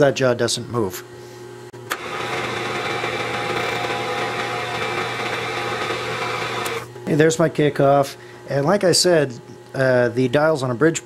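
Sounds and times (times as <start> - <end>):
milling machine running: 1.9 - 6.9
faint hum: 2.6 - 11.0.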